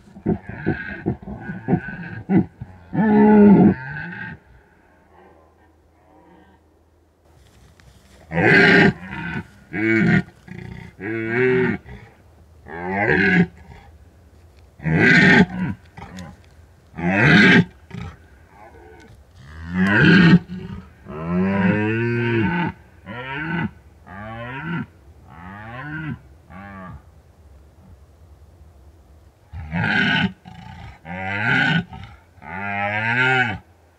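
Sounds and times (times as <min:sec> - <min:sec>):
red deer stag roaring: 0:08.2 - 0:13.9, 0:14.8 - 0:27.0.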